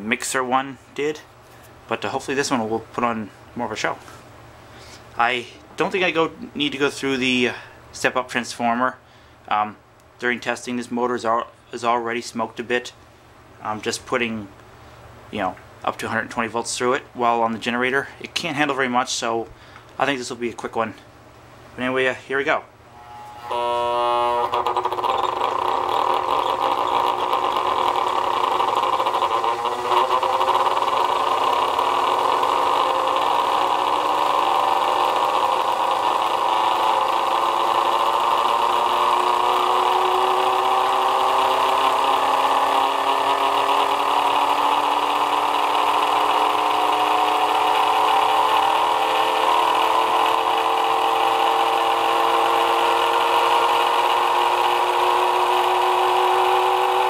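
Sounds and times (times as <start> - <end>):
electric motor whining: 22.9 - 57.0.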